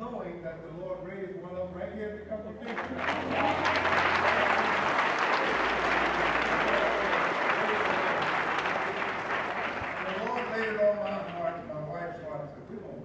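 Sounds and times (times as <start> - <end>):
crowd applauding: 2.6 - 11.7.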